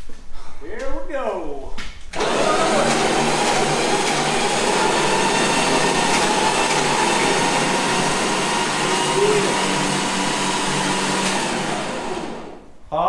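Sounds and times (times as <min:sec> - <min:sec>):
electric winch motor whining: 0:02.1 - 0:12.7.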